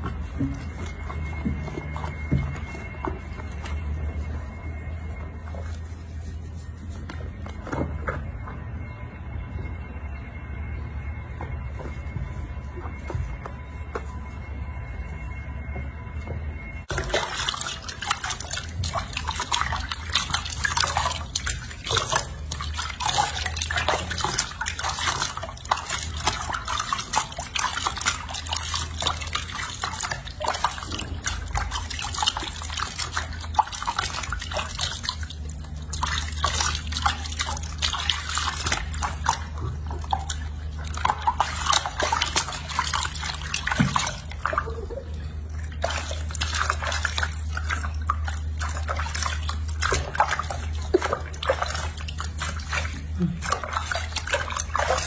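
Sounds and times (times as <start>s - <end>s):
water splashing in a sink: 0.0s - 6.1s, 16.9s - 55.0s
low hum: 0.0s - 55.0s
water dripping: 16.8s - 55.0s.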